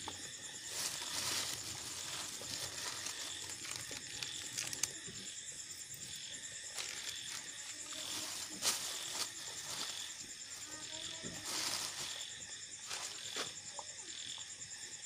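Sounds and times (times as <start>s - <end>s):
crickets chirring: 0.0s - 15.0s
plastic packets crinkling: 0.7s - 5.0s.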